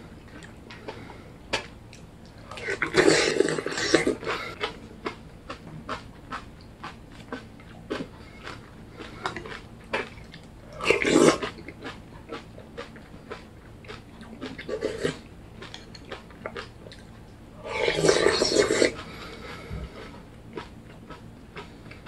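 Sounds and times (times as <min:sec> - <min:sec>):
chewing: 0:00.2 - 0:22.0
slurping: 0:17.6 - 0:20.2.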